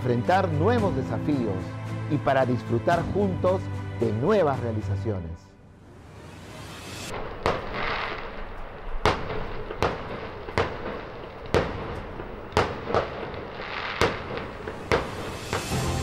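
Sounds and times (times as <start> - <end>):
crackle and hiss of burning stars: 6.2 - 16.0
fireworks bangs: 7.1 - 15.8.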